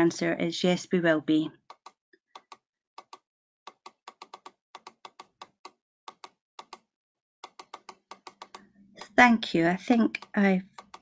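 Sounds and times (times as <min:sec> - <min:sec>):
faint keyboard typing: 0:01.7 - 0:06.8, 0:07.4 - 0:11.0.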